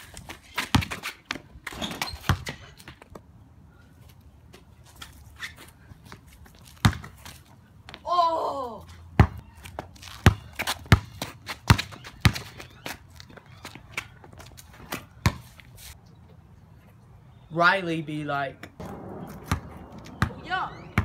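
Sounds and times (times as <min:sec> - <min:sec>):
basketball bouncing on concrete: 0:00.2 - 0:03.2, 0:06.7 - 0:07.3, 0:09.2 - 0:15.5, 0:18.8 - 0:21.0
boy shouting: 0:08.0 - 0:08.9, 0:20.4 - 0:20.9.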